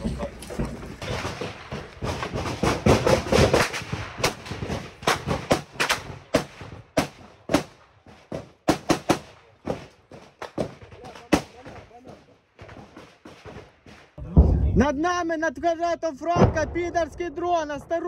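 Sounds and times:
gunshots: 0:01.0 - 0:14.9.

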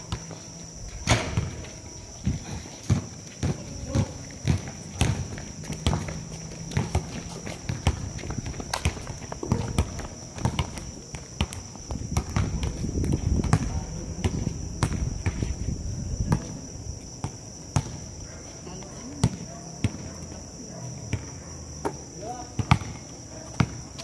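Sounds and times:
running footsteps on court: 0:00.1 - 0:24.0
basketball bouncing: 0:01.1 - 0:15.4, 0:17.2 - 0:18.1, 0:19.2 - 0:20.1, 0:21.1 - 0:22.0, 0:22.6 - 0:23.8.

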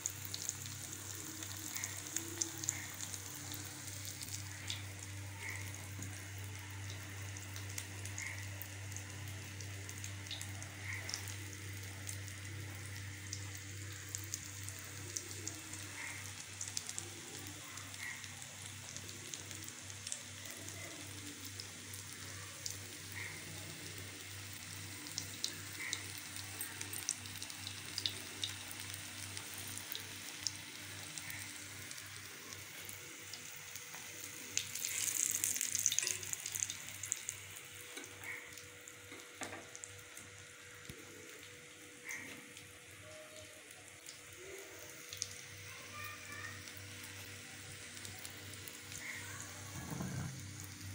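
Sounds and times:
oil popping and crackling: 0:00.0 - 0:50.9
oil sizzling in a wok: 0:00.0 - 0:50.9.

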